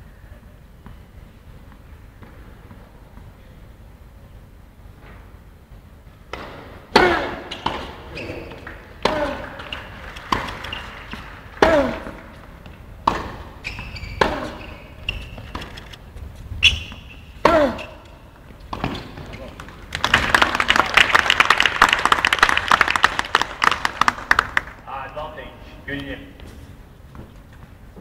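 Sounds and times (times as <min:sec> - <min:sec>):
tennis ball bouncing: 0:06.2 - 0:15.9, 0:16.7 - 0:19.8
racket striking tennis ball: 0:06.3 - 0:15.9, 0:16.7 - 0:19.3
shoe squeaks: 0:07.1 - 0:11.2, 0:13.5 - 0:19.5.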